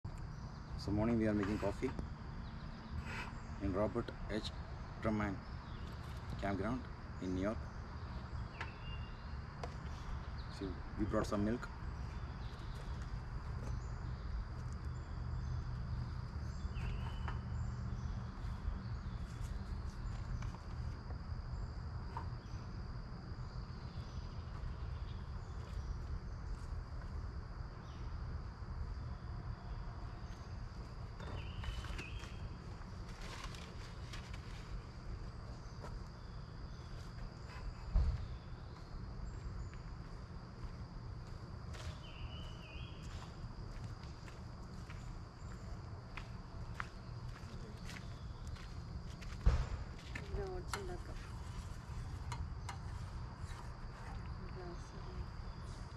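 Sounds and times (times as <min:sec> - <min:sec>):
dull thump: 0:49.4 - 0:49.9.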